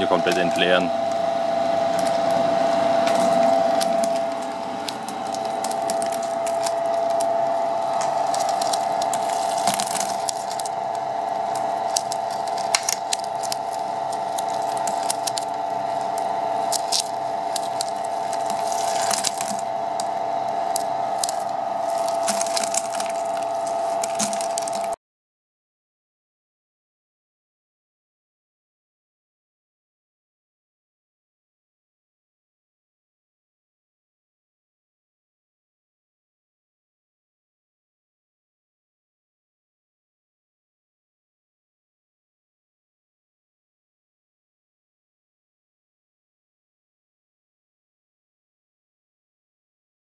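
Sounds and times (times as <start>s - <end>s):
ice machine mechanical drone: 0.0s - 25.0s
ice flakes crackling: 3.0s - 25.0s.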